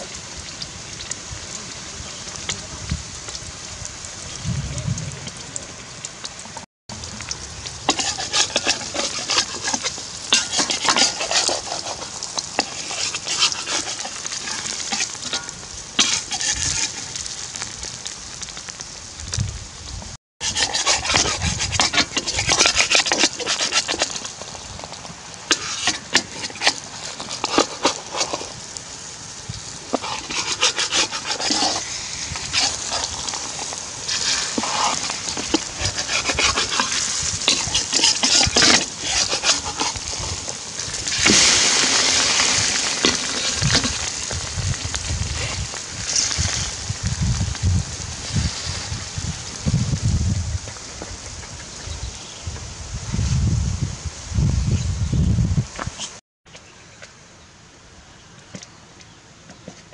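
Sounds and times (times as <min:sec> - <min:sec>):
eggs sizzling in a wok: 0:05.2 - 0:54.7
spatula scraping and tapping wok: 0:07.9 - 0:17.4, 0:20.4 - 0:24.9, 0:25.5 - 0:28.6, 0:29.9 - 0:46.7.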